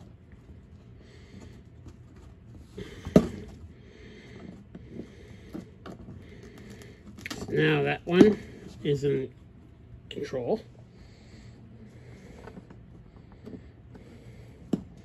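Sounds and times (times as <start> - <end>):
wires rustling against cardboard: 0.0 - 9.8.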